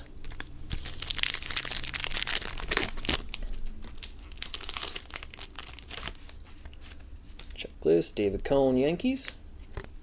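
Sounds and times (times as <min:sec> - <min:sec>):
wrapper tearing and crinkling: 0:00.3 - 0:06.2.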